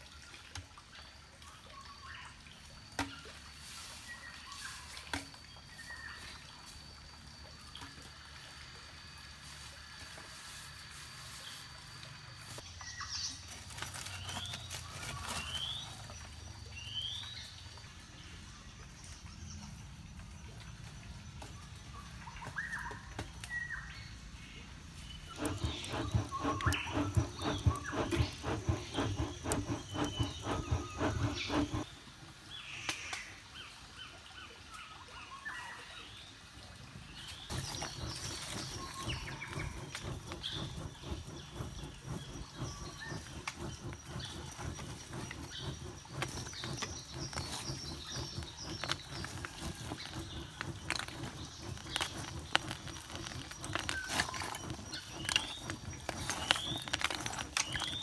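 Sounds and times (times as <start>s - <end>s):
birds chirping: 25.0s - 31.9s, 37.5s - 58.0s
charcoal lumps clicking: 25.3s - 31.9s, 37.5s - 58.0s
fast rhythmic beat: 25.4s - 31.8s, 37.5s - 56.4s.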